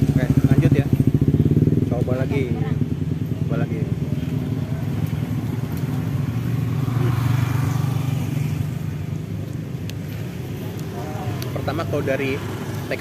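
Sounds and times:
motor vehicle passing: 0:00.0 - 0:13.0
road traffic: 0:00.0 - 0:13.0.

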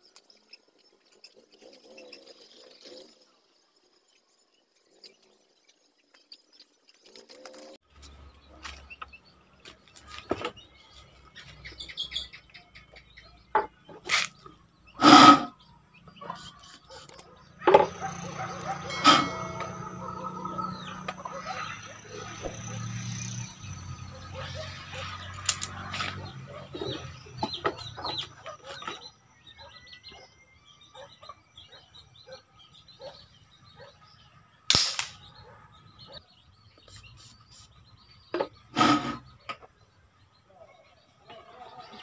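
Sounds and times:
chickens clucking: 0:16.1 - 0:22.7, 0:24.2 - 0:29.0
sharp gunshot: 0:34.7 - 0:35.2.

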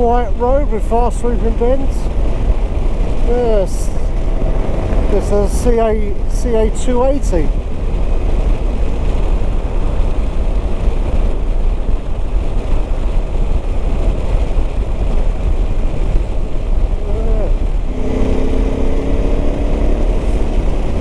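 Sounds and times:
wind rush on microphone: 0:00.0 - 0:21.0
motorcycle engine: 0:03.8 - 0:05.5, 0:17.0 - 0:21.0.

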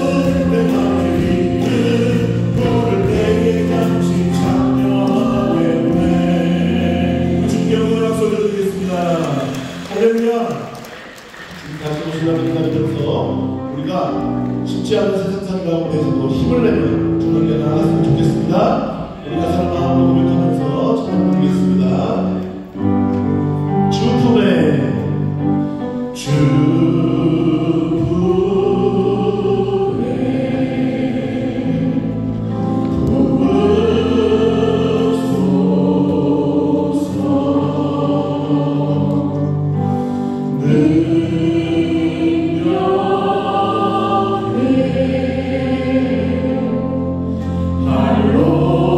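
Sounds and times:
drums: 0:00.0 - 0:06.8
group singing a gospel song: 0:00.0 - 0:12.7, 0:26.1 - 0:48.9
keyboard: 0:00.0 - 0:48.9.

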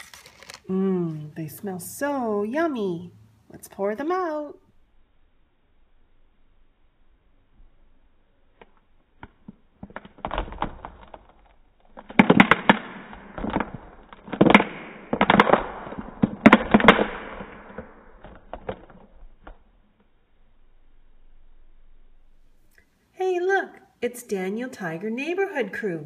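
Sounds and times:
candies clattering on table: 0:00.0 - 0:01.2.

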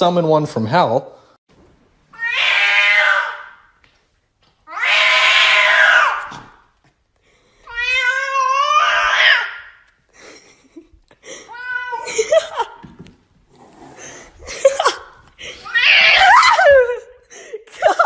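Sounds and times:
cat yowling: 0:02.1 - 0:03.6, 0:04.7 - 0:06.4, 0:07.7 - 0:09.8, 0:11.5 - 0:12.2, 0:15.7 - 0:16.8.

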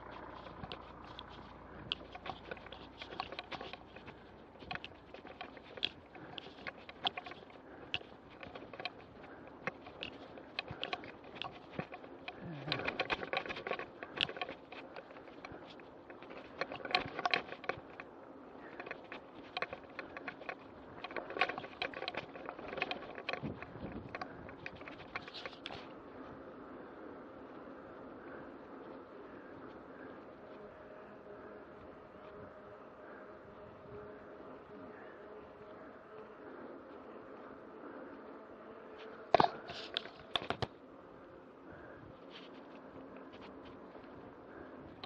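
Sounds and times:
tyre noise: 0:00.0 - 0:26.6
mountain bike rattling: 0:00.0 - 0:45.0.

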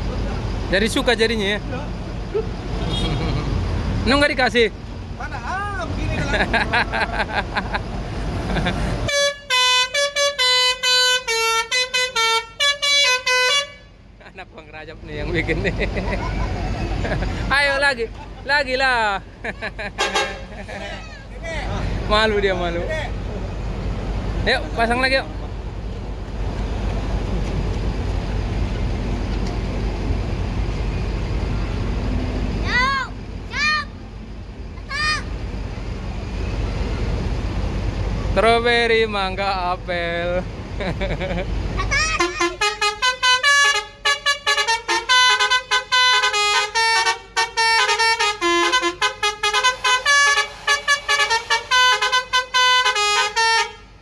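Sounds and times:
diesel engine idling: 0:00.0 - 0:54.0
multi-tone bus air horn tune: 0:02.8 - 0:03.2, 0:09.0 - 0:14.1, 0:20.0 - 0:20.6, 0:42.0 - 0:54.0.

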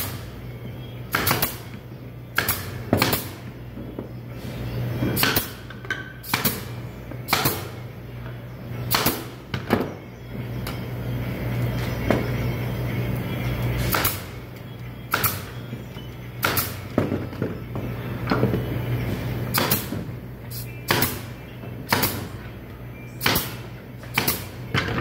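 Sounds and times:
steady low hum: 0:00.0 - 0:25.0
nail gun firing into wood: 0:01.1 - 0:01.7, 0:02.4 - 0:03.4, 0:05.2 - 0:05.6, 0:06.2 - 0:06.7, 0:07.3 - 0:07.8, 0:08.9 - 0:09.4, 0:13.9 - 0:14.3, 0:15.1 - 0:15.5, 0:16.4 - 0:16.9, 0:19.5 - 0:20.0, 0:20.9 - 0:21.2, 0:21.9 - 0:22.3, 0:23.2 - 0:25.0.

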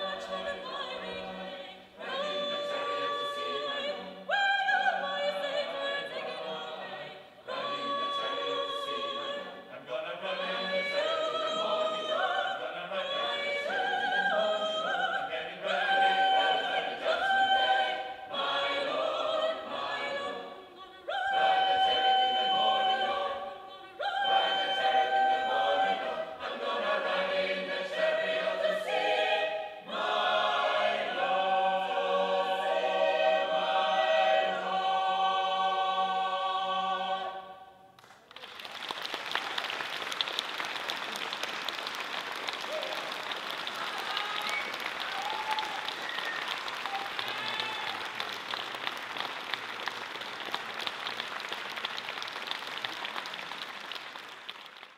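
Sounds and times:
choir singing unaccompanied: 0:00.0 - 0:37.8
audience applauding: 0:38.0 - 0:54.9.

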